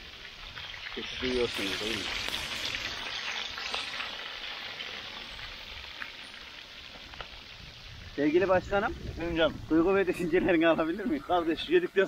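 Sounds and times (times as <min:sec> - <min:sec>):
oil popping: 0:00.0 - 0:08.3
fish sizzling in oil: 0:00.0 - 0:12.0.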